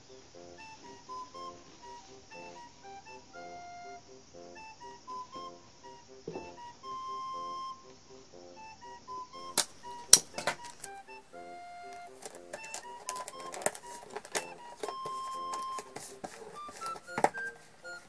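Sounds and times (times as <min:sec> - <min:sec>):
light background music: 0:00.0 - 0:18.0
tape snapping: 0:09.5 - 0:11.0, 0:11.8 - 0:17.7
paper tape crackling: 0:09.6 - 0:11.0, 0:11.8 - 0:18.0.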